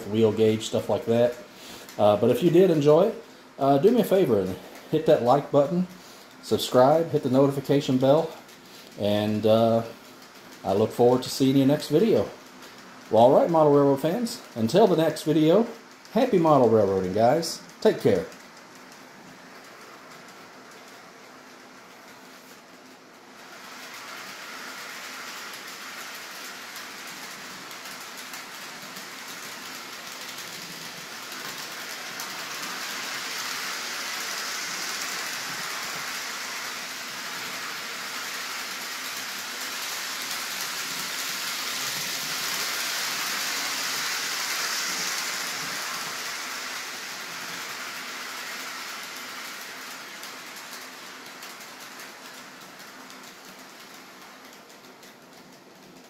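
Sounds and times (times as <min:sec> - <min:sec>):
model train running on track: 0:00.0 - 0:56.0.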